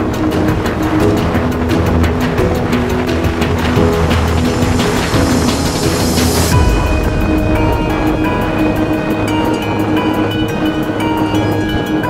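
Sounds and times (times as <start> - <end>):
music with steady beat: 0.0 - 12.0
swell of hiss: 2.2 - 11.4
deep tone dropping: 3.7 - 10.6.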